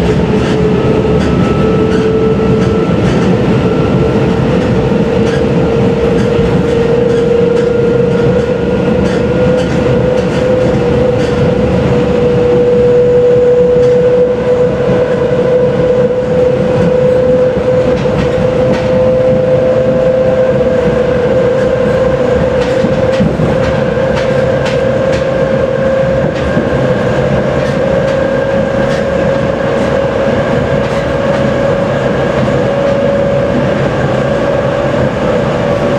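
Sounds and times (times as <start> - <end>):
traction motor whine: 0.0 - 35.9
train rolling noise: 0.0 - 35.9
wheels clicking over rail joints: 4.6 - 11.6, 21.6 - 34.6.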